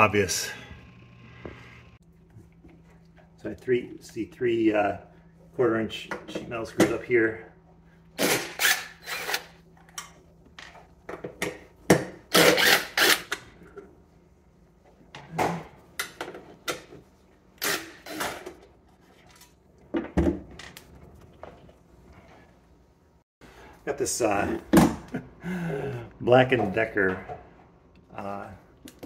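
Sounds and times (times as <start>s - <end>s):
cordless drill removing screws: 8.2s - 9.5s, 12.3s - 13.3s.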